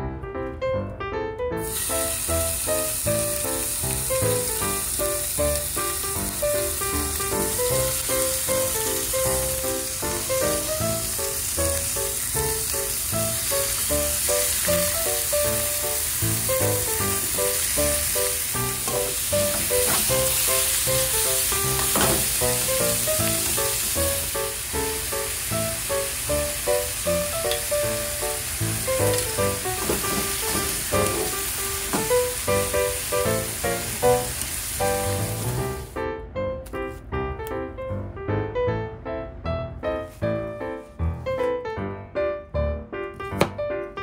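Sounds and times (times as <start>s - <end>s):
meat sizzling in frying pan: 1.6s - 35.9s.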